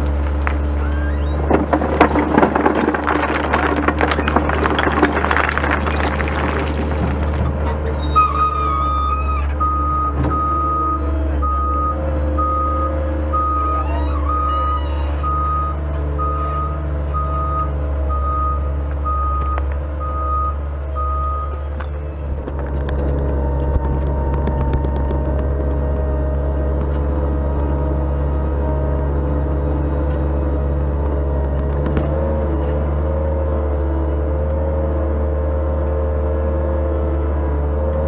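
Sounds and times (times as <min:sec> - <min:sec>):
loader engine running: 0:00.0 - 0:38.0
reversing alarm beeping: 0:08.3 - 0:21.7.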